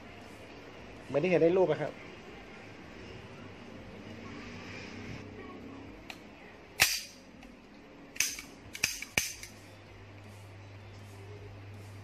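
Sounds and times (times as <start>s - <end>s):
pistol action snapping and clicking: 6.8s - 7.5s, 8.1s - 9.6s.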